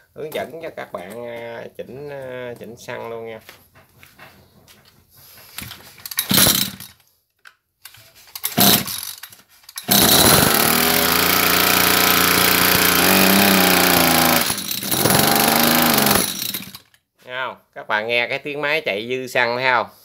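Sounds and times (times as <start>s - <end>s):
recoil starter pulls: 5.6s - 7.0s, 8.4s - 16.9s
two-stroke engine running: 6.3s - 6.8s, 8.6s - 9.1s, 9.9s - 16.8s.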